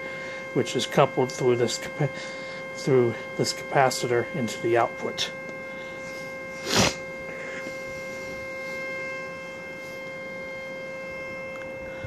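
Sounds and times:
steady mid-pitched tone: 0:00.0 - 0:12.0.

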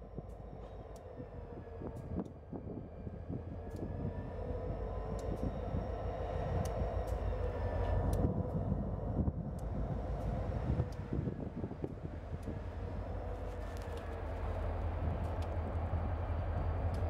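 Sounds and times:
locomotive engine drone: 0:00.0 - 0:17.0.

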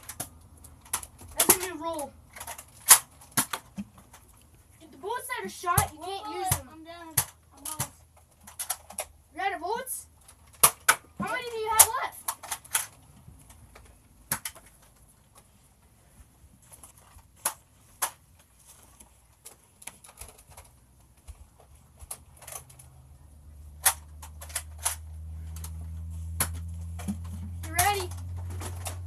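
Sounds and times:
toy dart guns clicking and snapping: 0:00.0 - 0:04.2, 0:06.4 - 0:09.1, 0:10.3 - 0:14.9, 0:23.7 - 0:29.0.

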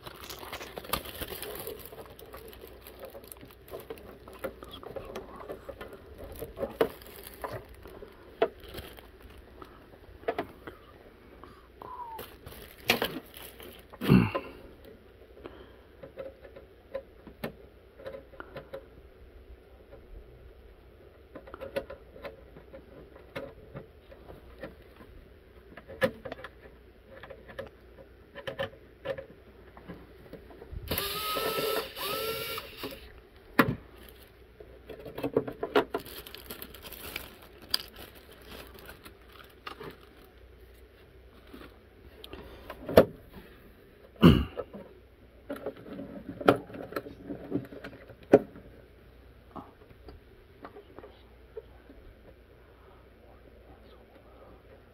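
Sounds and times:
hands handling plastic case: 0:00.0 - 0:10.7
cordless screwdriver: 0:30.9 - 0:33.1.

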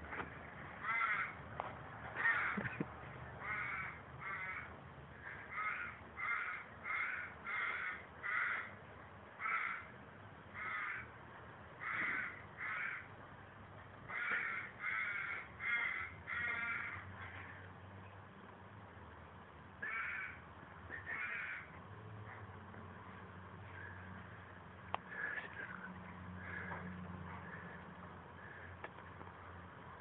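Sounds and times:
crows cawing: 0:00.8 - 0:01.4, 0:02.2 - 0:08.8, 0:09.4 - 0:09.9, 0:10.6 - 0:11.1, 0:11.8 - 0:13.1, 0:14.1 - 0:17.7, 0:19.8 - 0:21.8, 0:23.7 - 0:24.1, 0:25.0 - 0:28.9.

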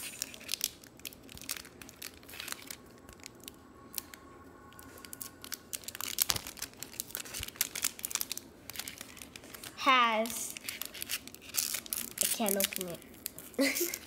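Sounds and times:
foil wrapper crinkling: 0:00.0 - 0:14.0.

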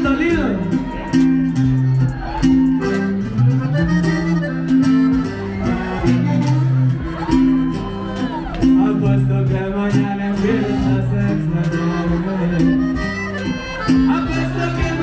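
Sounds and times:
latin music over pa: 0:00.0 - 0:15.0
person singing: 0:08.6 - 0:13.1, 0:13.9 - 0:15.0.

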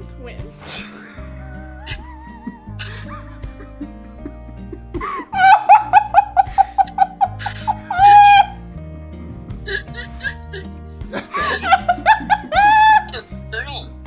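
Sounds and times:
soft background music: 0:00.0 - 0:14.0
high-pitched laughter: 0:00.8 - 0:08.6, 0:11.2 - 0:13.1
person shrieking: 0:07.9 - 0:08.6.

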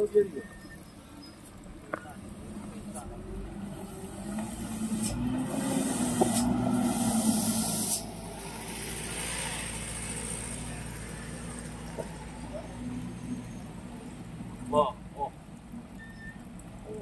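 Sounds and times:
diesel engine running: 0:02.3 - 0:15.2
loud hiss: 0:04.8 - 0:10.4.

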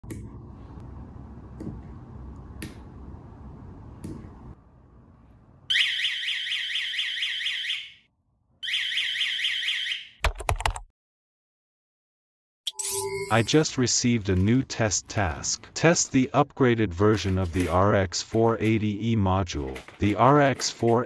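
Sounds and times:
warbling alarm siren: 0:05.7 - 0:08.0, 0:08.6 - 0:10.1.

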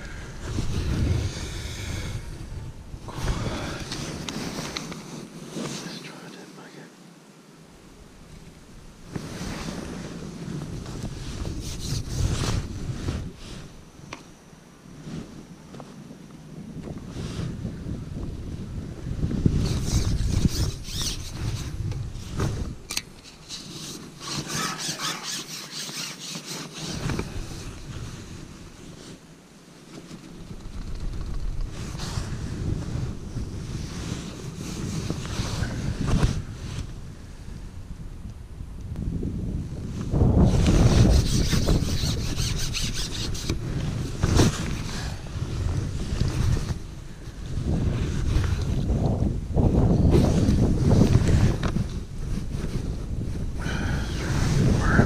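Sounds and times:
wind buffeting microphone: 0:00.0 - 0:05.4, 0:07.8 - 0:14.1, 0:15.0 - 0:25.6, 0:30.2 - 0:55.0
fishing pole squeaking and rubbing: 0:11.5 - 0:12.6, 0:19.6 - 0:21.7, 0:23.2 - 0:27.2, 0:40.8 - 0:43.6.

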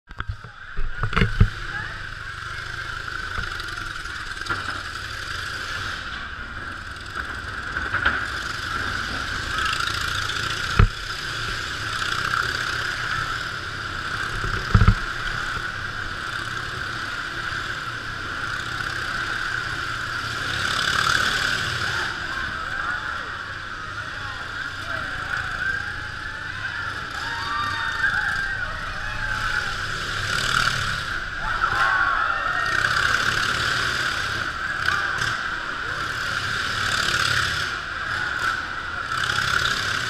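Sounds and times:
motorcycle engine running: 0:00.1 - 0:40.0.

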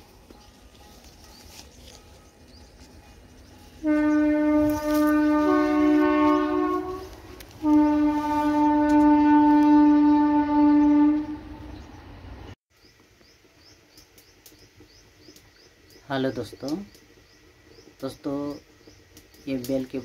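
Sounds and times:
long pitched horn blasts: 0:00.0 - 0:12.4.

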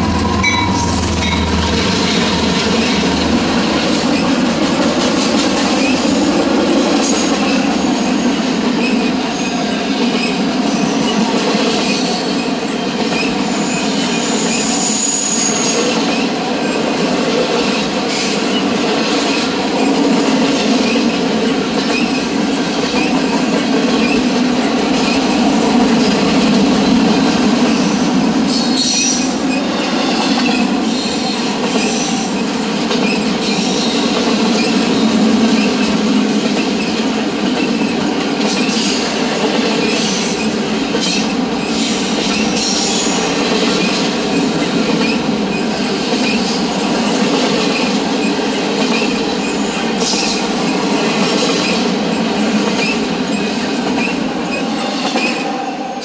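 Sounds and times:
freight train wheels rumbling: 0:00.0 - 0:56.0
high wheel squeals: 0:11.9 - 0:16.2.

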